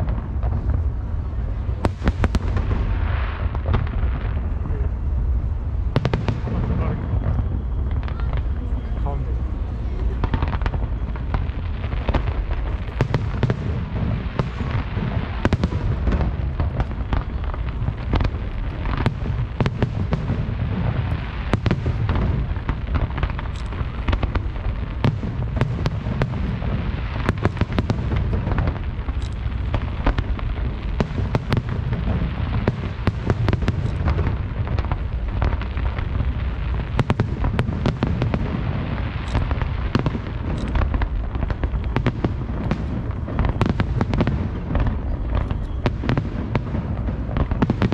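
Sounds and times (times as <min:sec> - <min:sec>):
low rumble: 0:00.0 - 0:37.6
fireworks bangs: 0:00.0 - 0:47.9.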